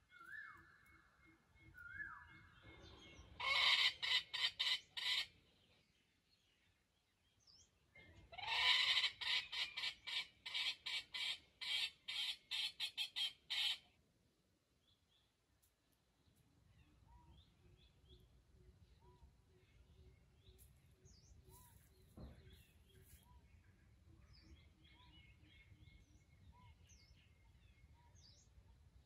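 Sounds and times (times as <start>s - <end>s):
junglefowl harsh pulsed calls: 3.4s - 5.3s, 8.4s - 13.9s.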